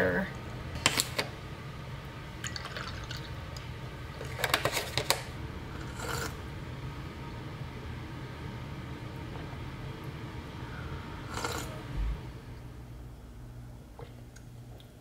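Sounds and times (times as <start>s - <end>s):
milk pouring into a mug: 2.4s - 3.6s
person sipping from a mug: 11.2s - 11.8s.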